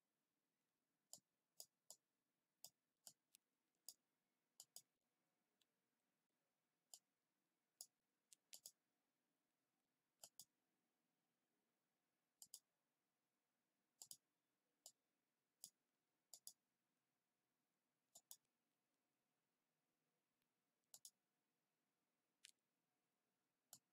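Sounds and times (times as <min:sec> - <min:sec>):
computer mouse clicks: 0:04.6 - 0:04.9, 0:07.8 - 0:08.8, 0:10.2 - 0:10.5, 0:12.4 - 0:12.7, 0:14.0 - 0:14.2, 0:15.6 - 0:16.6, 0:18.1 - 0:18.5, 0:20.8 - 0:21.2, 0:23.7 - 0:23.9.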